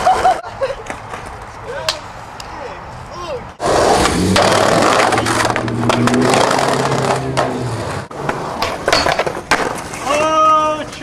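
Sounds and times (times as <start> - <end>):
skateboard wheels rolling on brick: 3.6 - 11.0
skateboard clacking on metal rail: 8.2 - 10.3.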